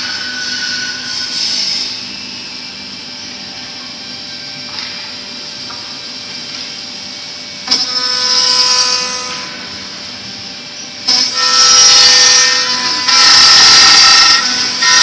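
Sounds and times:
router spindle cutting wood: 0:11.1 - 0:15.0.

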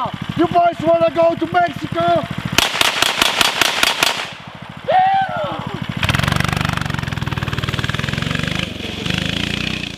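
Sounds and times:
small petrol engine revving: 0:00.0 - 0:02.6, 0:04.4 - 0:09.9
person shouting: 0:04.8 - 0:05.8.

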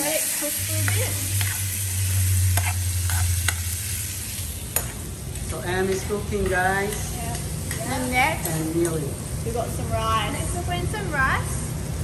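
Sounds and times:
chicken sizzling in a frying pan: 0:00.0 - 0:09.6.

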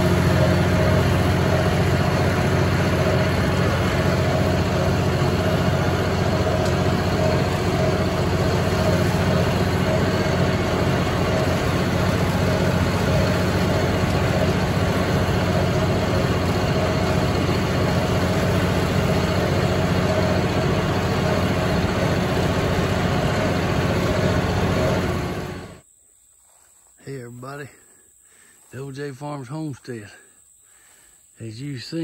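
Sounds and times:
tractor diesel engine running: 0:00.0 - 0:25.8.

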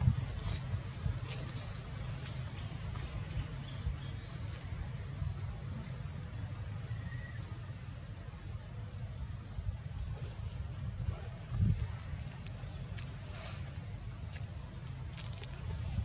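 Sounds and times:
wind rumble on microphone: 0:00.0 - 0:05.6, 0:09.1 - 0:14.4, 0:15.3 - 0:16.0.

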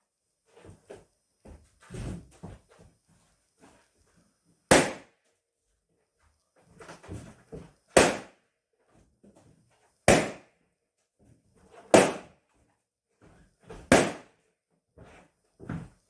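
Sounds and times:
balloons popping: 0:04.7 - 0:05.1, 0:07.9 - 0:08.3, 0:10.1 - 0:10.4, 0:11.9 - 0:12.3, 0:13.9 - 0:14.3.

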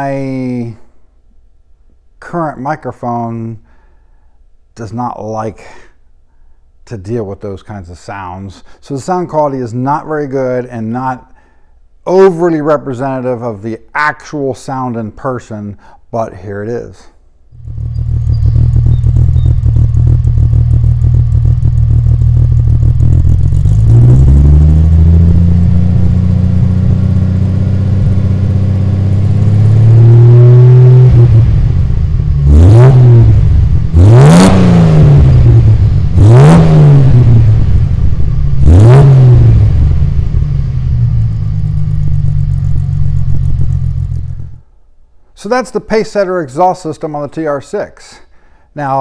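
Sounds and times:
car engine idling and revving: 0:17.6 - 0:44.6.

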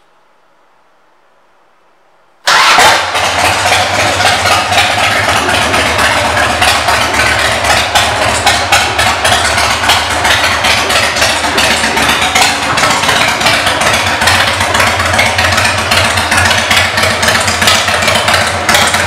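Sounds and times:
motorcycle engine idling: 0:02.5 - 0:19.0.

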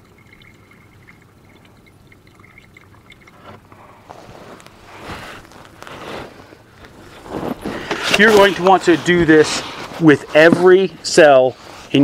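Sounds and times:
faint water trickle: 0:00.0 - 0:04.8
rustling handling noise: 0:03.4 - 0:12.0.

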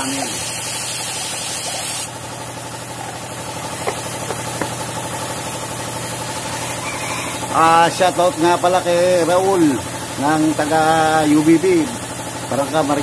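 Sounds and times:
motor humming: 0:00.0 - 0:07.7.

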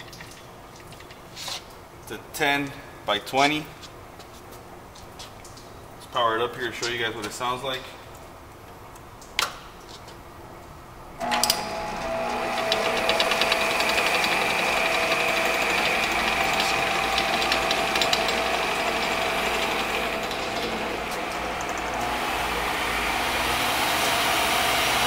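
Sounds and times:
lathe motor whining with rattle: 0:11.2 - 0:25.0.

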